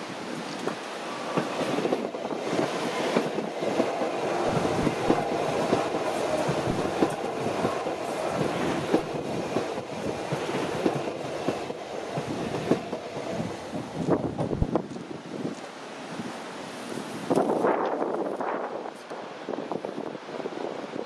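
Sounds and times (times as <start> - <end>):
electric train running noise: 0.1 - 14.9
train wheels clicking over rail joints: 0.4 - 15.7.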